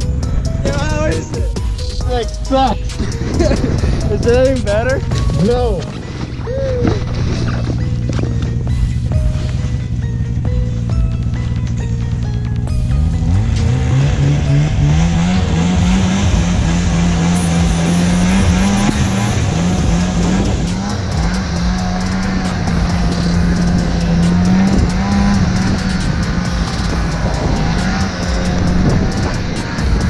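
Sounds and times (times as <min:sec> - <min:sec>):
snowmobile engine revving: 0:02.0 - 0:30.0
steady rushing hiss: 0:16.7 - 0:30.0.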